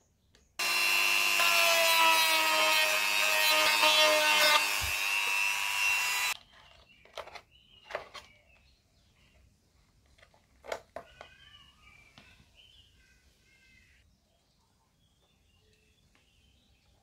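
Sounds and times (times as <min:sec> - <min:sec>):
rotary tool whining: 0:00.6 - 0:06.4
faint bird chirps: 0:11.0 - 0:17.0.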